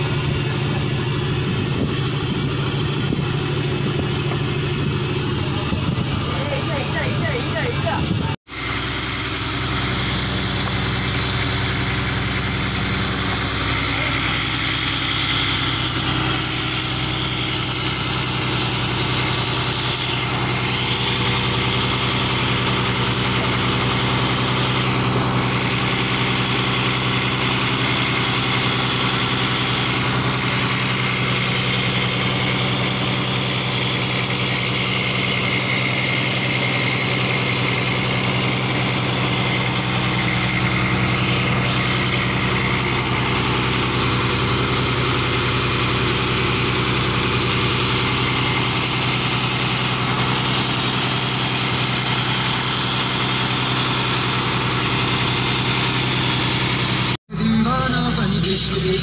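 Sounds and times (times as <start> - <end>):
boat engine droning: 0.0 - 59.0.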